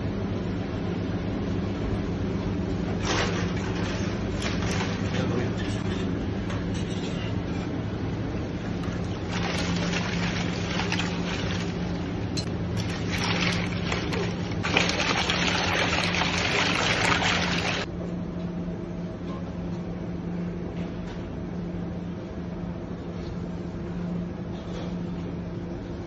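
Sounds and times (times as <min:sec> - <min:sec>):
steady low hum: 0:00.0 - 0:26.0
water splashing in a metal pan: 0:03.0 - 0:05.2, 0:08.8 - 0:17.9.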